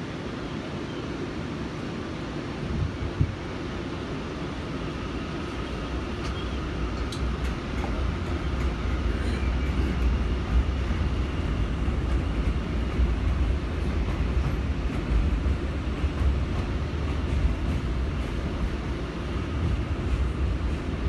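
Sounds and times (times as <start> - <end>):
train wheels rumbling on rail: 0.0 - 21.0
light ticks: 7.0 - 8.0.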